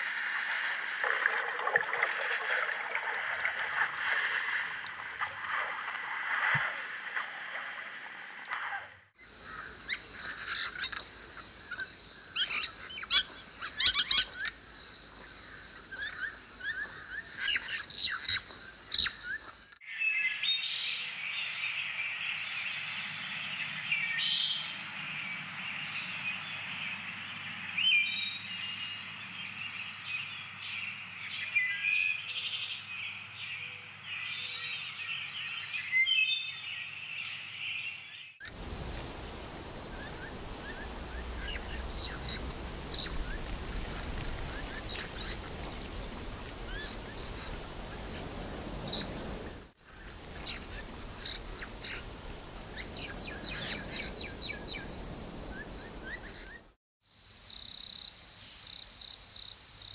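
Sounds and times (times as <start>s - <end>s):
wild birds chirping: 9.2s - 56.8s.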